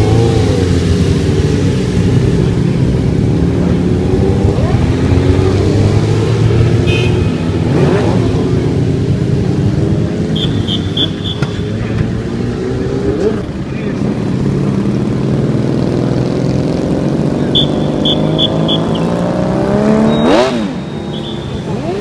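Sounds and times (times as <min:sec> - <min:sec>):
motorcycles revving past: 0:00.0 - 0:22.0
short high beeps: 0:19.8 - 0:21.8.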